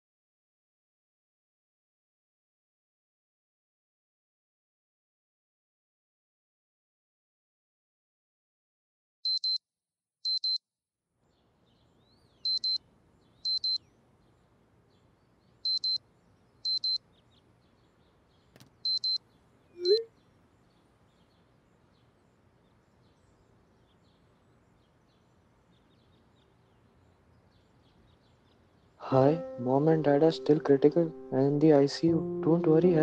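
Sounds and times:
electronic alarm double beeps: 0:09.3 - 0:09.6, 0:10.3 - 0:10.6, 0:12.5 - 0:12.8, 0:13.5 - 0:13.8, 0:15.7 - 0:16.0, 0:16.7 - 0:17.0, 0:18.8 - 0:19.2, 0:19.8 - 0:20.1
faint room hiss: 0:11.2 - 0:33.0.

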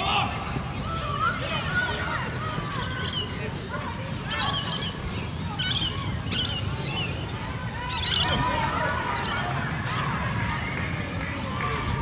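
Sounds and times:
birds chirping: 0:04.3 - 0:11.8.

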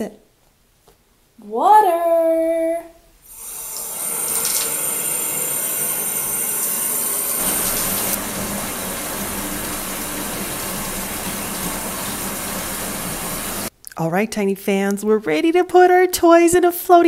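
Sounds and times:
water running from faucet into tub: 0:03.3 - 0:13.7.

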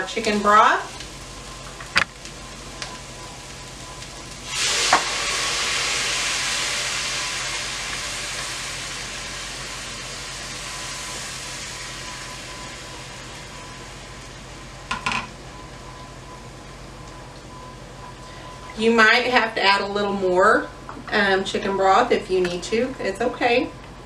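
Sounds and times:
broth sizzling in hot skillet: 0:00.0 - 0:17.0.

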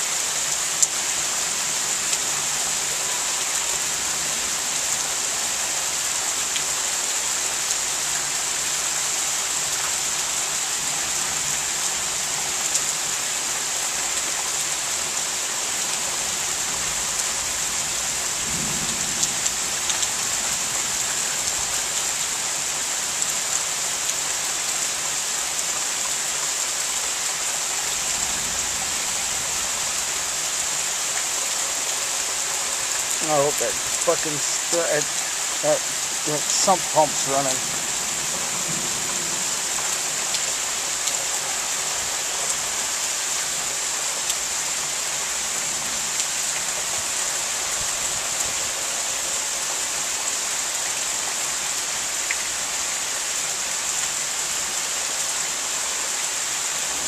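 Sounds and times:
rain falling: 0:00.0 - 0:57.0
raindrops ticking: 0:32.9 - 0:38.4.

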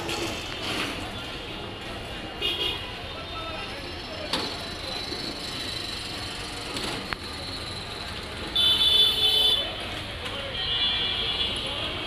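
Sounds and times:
street traffic: 0:00.0 - 0:12.0.

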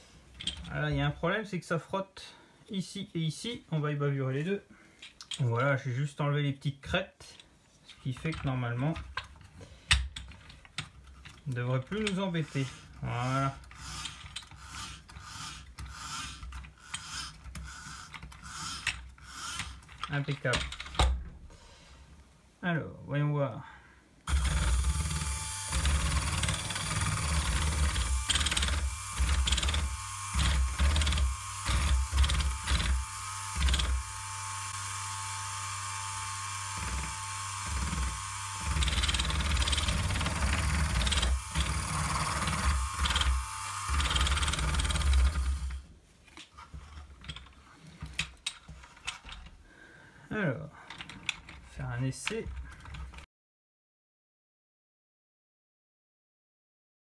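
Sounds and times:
small electric motors whirring: 0:12.0 - 0:20.0, 0:24.3 - 0:45.8.

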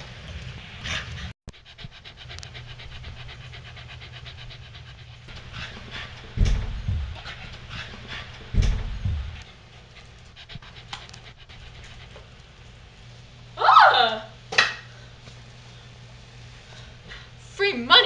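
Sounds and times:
dog panting: 0:00.3 - 0:12.8
heavy low thumps: 0:05.4 - 0:09.4.

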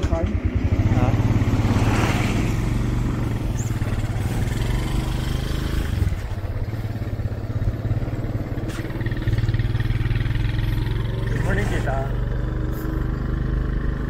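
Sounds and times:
small motorcycle engine running: 0:00.0 - 0:14.0.

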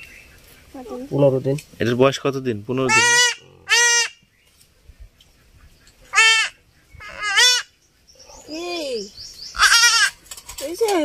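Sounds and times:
goat kid bleating: 0:09.6 - 0:10.2.

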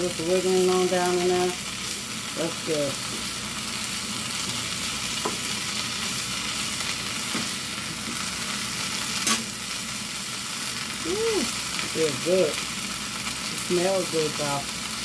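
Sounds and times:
vegetables sizzling in a frying pan: 0:00.0 - 0:15.0.

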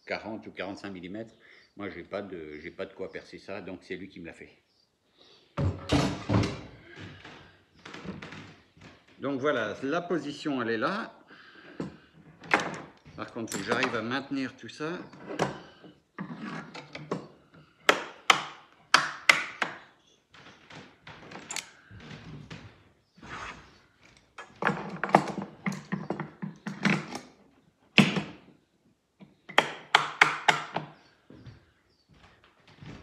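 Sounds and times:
metal clamps clicking and knocking: 0:12.4 - 0:14.2, 0:21.4 - 0:21.8, 0:24.2 - 0:27.4.

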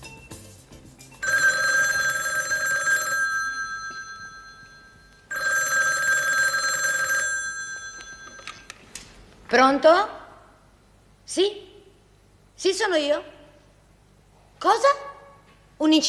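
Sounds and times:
telephone bell ringing: 0:01.2 - 0:08.7.

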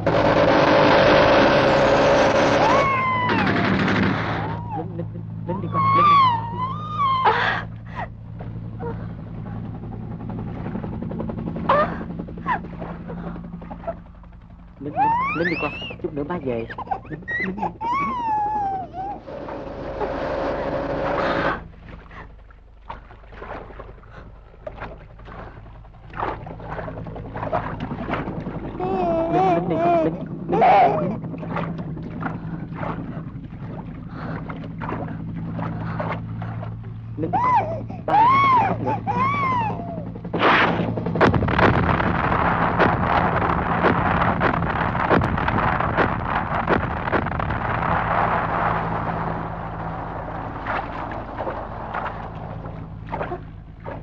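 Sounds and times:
steady low hum: 0:00.0 - 0:54.0
baby crying: 0:05.6 - 0:07.7, 0:14.8 - 0:16.0, 0:16.6 - 0:19.3, 0:28.8 - 0:31.2, 0:37.2 - 0:40.1
water splashing from swimming: 0:21.2 - 0:39.8, 0:48.1 - 0:54.0.

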